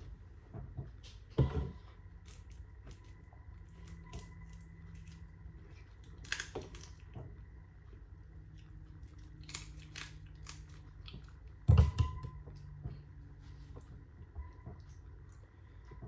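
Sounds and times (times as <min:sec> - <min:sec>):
seafood shell clicks and crunches: 0:06.1 - 0:07.1, 0:09.2 - 0:11.4.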